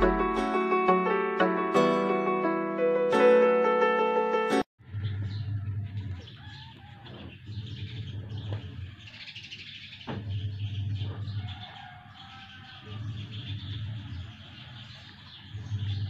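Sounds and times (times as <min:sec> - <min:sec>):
piano tune: 0:00.0 - 0:04.7
birds chirping: 0:04.8 - 0:16.0.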